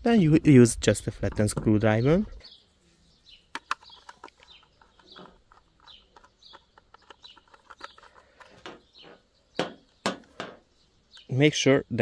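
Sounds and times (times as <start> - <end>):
birds chirping and clucking: 0.9 - 12.0
screwdriver clicking and scraping: 3.6 - 8.8.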